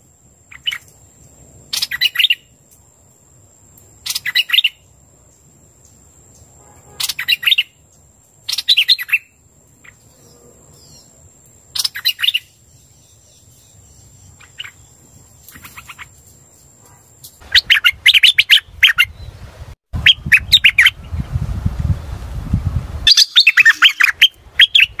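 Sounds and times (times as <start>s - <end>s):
bird song chattering phrases: 4.0s - 4.8s, 6.4s - 11.2s, 23.1s - 25.0s.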